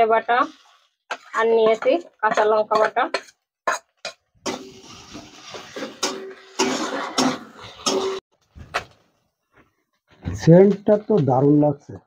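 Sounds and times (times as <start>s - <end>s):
spice paste sizzling in oil: 0.0s - 8.0s
metal spatula scraping pan: 0.0s - 8.2s.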